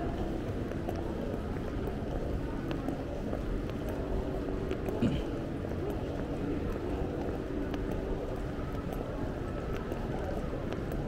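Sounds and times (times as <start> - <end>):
traffic rumble: 0.0 - 11.0
faint clicks: 5.6 - 11.0.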